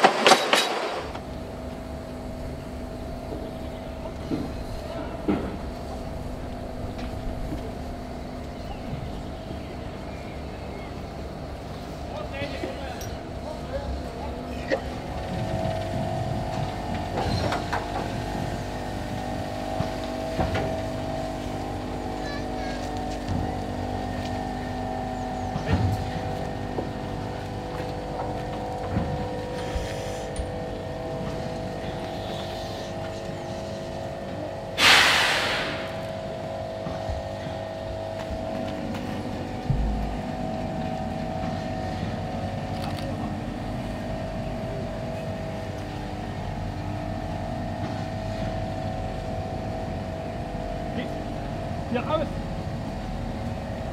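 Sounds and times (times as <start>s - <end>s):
locomotive mechanical hum: 0.0s - 53.9s
steam hissing: 29.4s - 30.5s, 31.8s - 34.0s, 34.7s - 36.5s.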